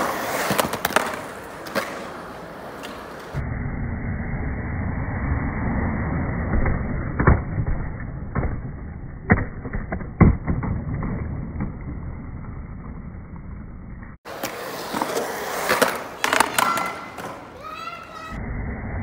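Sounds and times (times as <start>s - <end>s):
skateboard clacks: 0.0s - 3.4s, 14.3s - 17.7s
skateboard wheels rolling on concrete: 0.0s - 3.4s, 4.2s - 19.0s.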